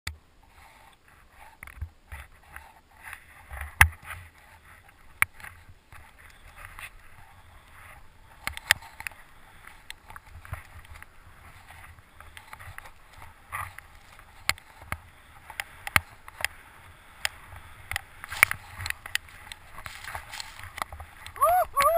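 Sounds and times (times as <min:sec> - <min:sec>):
skis swishing through powder snow: 0:16.1 - 0:21.3.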